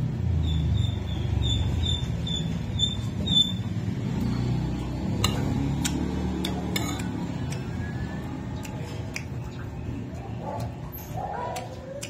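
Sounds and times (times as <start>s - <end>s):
cutlery clicking on a plate: 5.2s - 7.6s.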